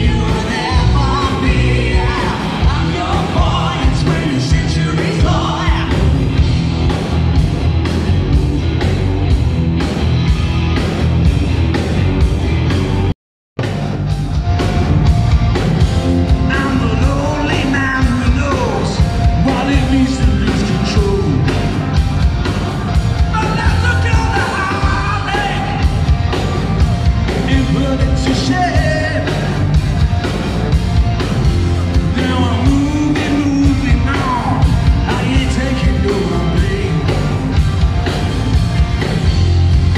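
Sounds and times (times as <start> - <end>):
person singing lead vocal: 0.0 - 6.3, 16.4 - 21.7, 23.3 - 26.0, 27.4 - 29.6, 32.0 - 37.3
bass: 0.0 - 39.9
drums: 0.0 - 39.9
electric guitars: 0.0 - 39.9.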